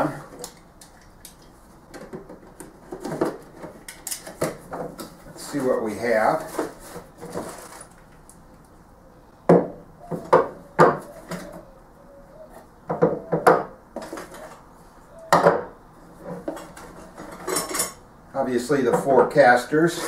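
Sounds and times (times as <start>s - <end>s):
handling noise: 1.3s - 8.4s.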